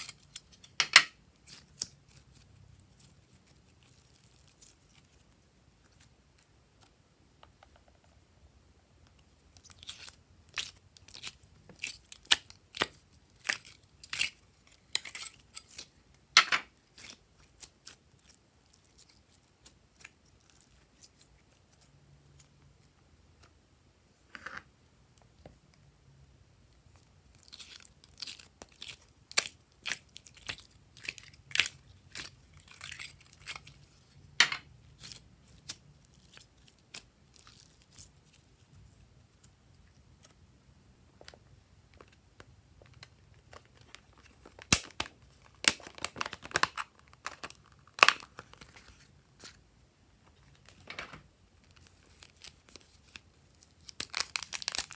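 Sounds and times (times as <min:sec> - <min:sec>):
slime crackling and popping: 0:42.9 - 0:48.7, 0:51.7 - 0:54.9.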